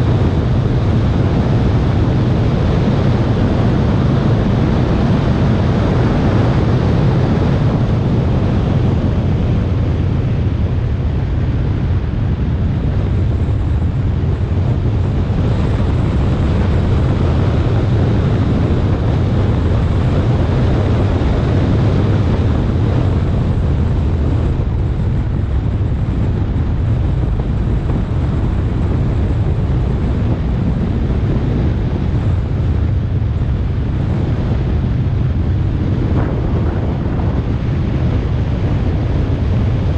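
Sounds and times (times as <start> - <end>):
car road and drivetrain noise: 0.0 - 39.9
wind buffeting microphone: 0.0 - 39.9.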